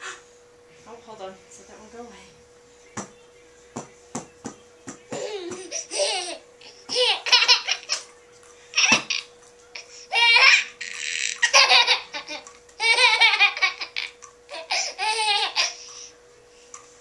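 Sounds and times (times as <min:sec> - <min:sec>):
faint steady hum: 0:00.0 - 0:17.0
toddler laughing: 0:05.2 - 0:08.1, 0:10.1 - 0:15.8.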